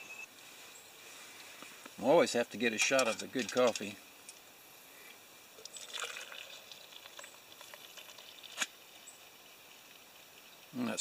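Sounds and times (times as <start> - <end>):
coffee trickling into a mug: 5.6 - 10.7.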